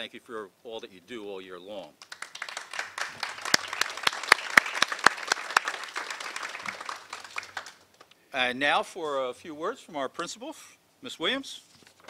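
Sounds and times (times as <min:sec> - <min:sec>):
small audience applauding: 0:02.0 - 0:08.1.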